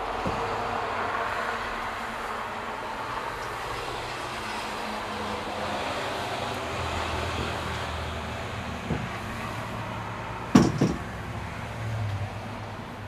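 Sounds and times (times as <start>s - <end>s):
knocks in locomotive cab: 8.8s - 9.3s, 10.5s - 11.1s.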